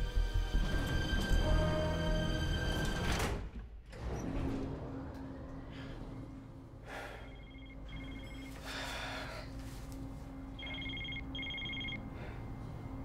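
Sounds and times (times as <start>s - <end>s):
phone electronic two-tone ring: 7.3s - 8.6s, 10.6s - 12.0s.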